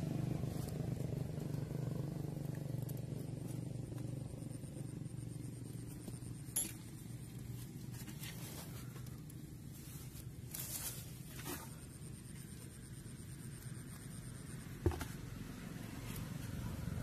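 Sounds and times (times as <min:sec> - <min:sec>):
low steady hum: 0:00.0 - 0:17.0
scraping rustle: 0:07.4 - 0:11.9.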